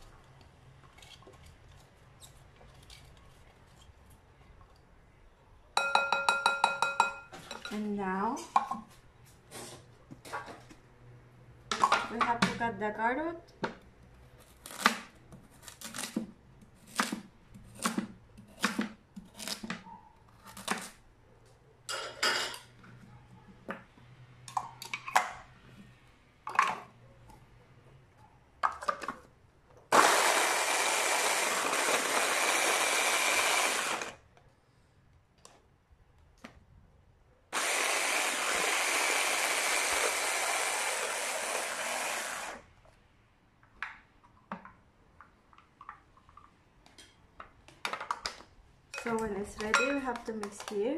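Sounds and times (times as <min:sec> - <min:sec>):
electric hand blender chopping: 0:29.9 - 0:34.2, 0:37.6 - 0:42.6.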